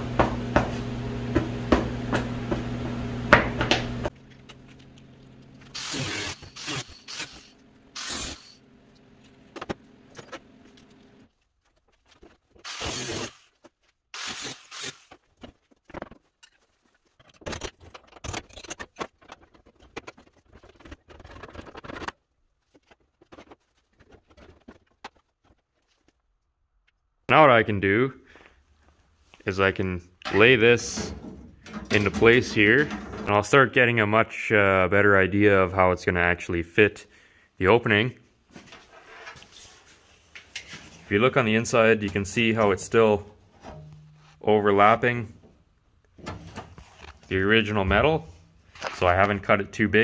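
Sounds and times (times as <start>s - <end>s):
cutoff tool motor hum: 5.7s - 8.6s, 12.7s - 13.5s, 14.2s - 15.1s.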